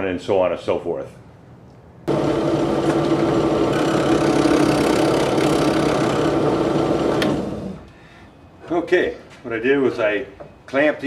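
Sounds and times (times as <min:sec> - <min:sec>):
drill press motor hum: 0:02.1 - 0:07.9.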